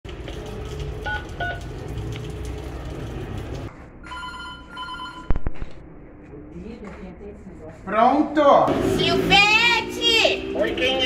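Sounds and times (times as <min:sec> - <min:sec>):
two-tone intercom ring: 0:04.0 - 0:05.3.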